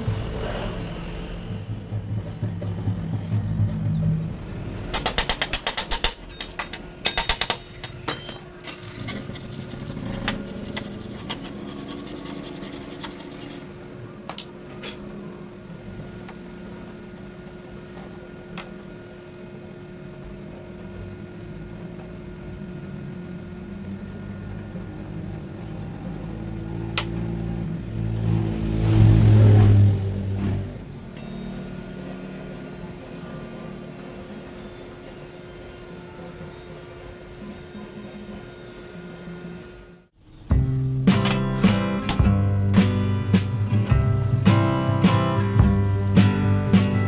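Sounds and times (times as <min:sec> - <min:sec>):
rubbing and scraping on metal: 0:08.7 - 0:13.7.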